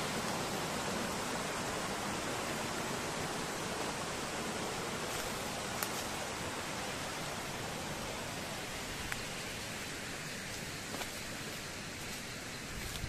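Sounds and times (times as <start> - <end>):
running water rushing: 0.0 - 13.0
faint ticks: 9.0 - 9.3.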